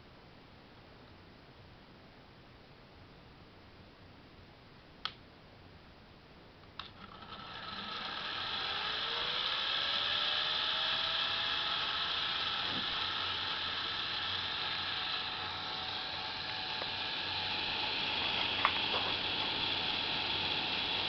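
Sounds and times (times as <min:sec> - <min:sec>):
toy motors and gears whirring: 0:06.8 - 0:21.0.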